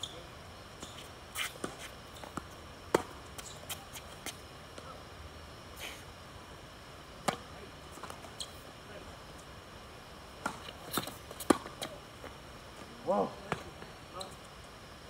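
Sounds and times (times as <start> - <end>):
ball bouncing on hard court: 1.6 - 3.5, 13.4 - 14.3
racket hitting tennis ball: 10.4 - 11.9.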